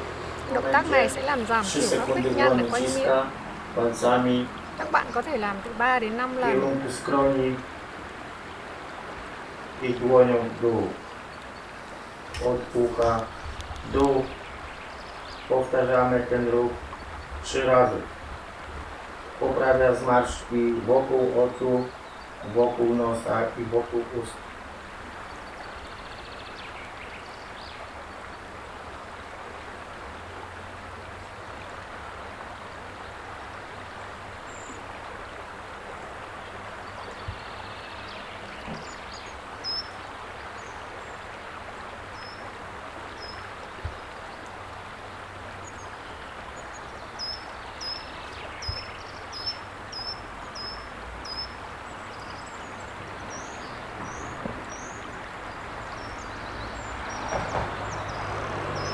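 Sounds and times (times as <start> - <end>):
water rushing along pebbly shore: 0.0 - 58.9
soft knocks: 38.4 - 39.0
small bird chirping: 45.6 - 55.2.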